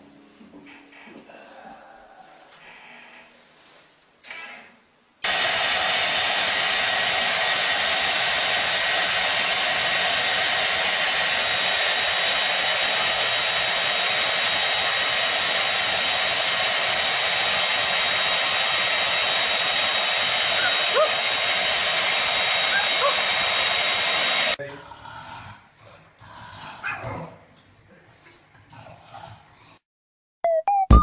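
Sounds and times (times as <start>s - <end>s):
hair dryer running: 5.2s - 24.6s.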